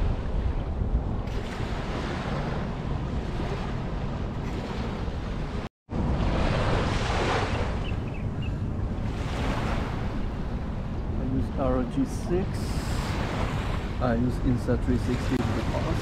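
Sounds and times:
wind buffeting microphone: 0:00.0 - 0:16.0
small waves washing onto shore: 0:01.2 - 0:08.2, 0:08.9 - 0:16.0.

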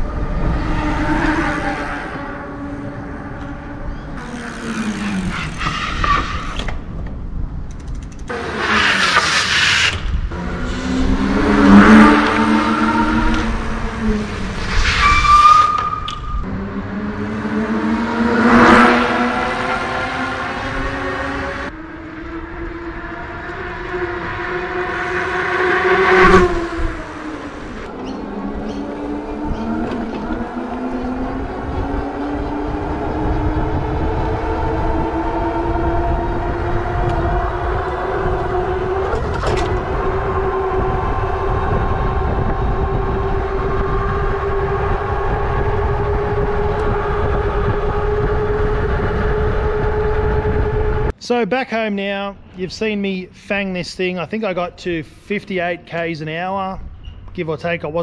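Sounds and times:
wind rumbling on microphone: 0:00.0 - 0:08.3, 0:09.9 - 0:17.6, 0:18.5 - 0:51.2
electric bike motor whining: 0:03.4 - 0:06.8, 0:26.5 - 0:51.1.

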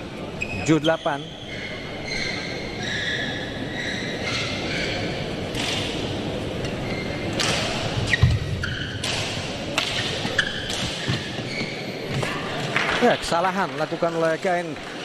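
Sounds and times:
racket hitting shuttlecock: 0:05.5 - 0:06.1, 0:07.3 - 0:11.4
shoes squeaking on court: 0:08.0 - 0:09.1, 0:09.9 - 0:12.7.

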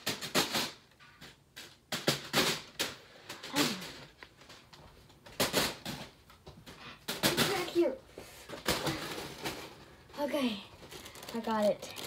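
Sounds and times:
foil balloon crinkling: 0:08.6 - 0:12.0.

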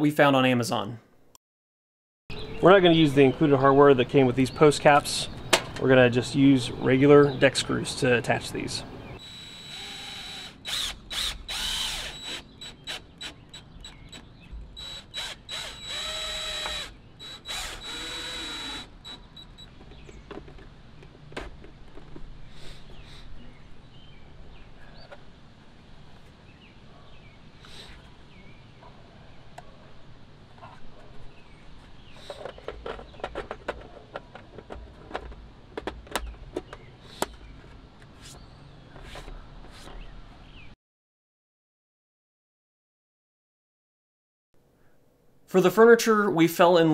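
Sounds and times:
cordless drill motor whine: 0:09.2 - 0:19.7.

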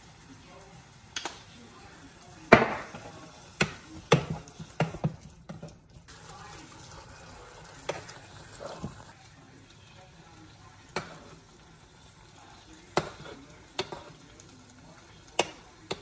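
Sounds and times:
faint simmering pot: 0:00.0 - 0:16.0
metal tongs clacking on pot: 0:12.9 - 0:14.5, 0:15.3 - 0:16.0.

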